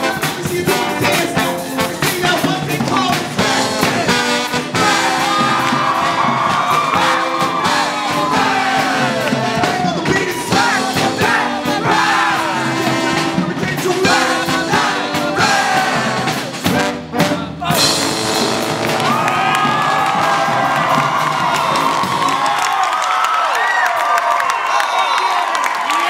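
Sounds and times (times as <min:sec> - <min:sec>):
singer shouting and singing: 0:00.0 - 0:18.0
brass band playing funk: 0:00.0 - 0:22.9
crowd cheering: 0:03.8 - 0:12.7, 0:17.7 - 0:26.0.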